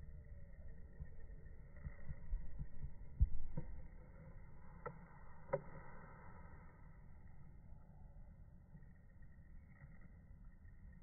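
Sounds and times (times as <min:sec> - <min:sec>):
low rumble: 0:00.0 - 0:11.0
faint clicks: 0:00.9 - 0:06.0.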